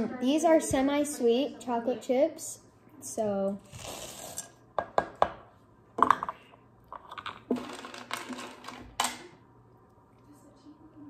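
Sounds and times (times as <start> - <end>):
chocolate chips rattling into bowl: 7.0 - 8.9.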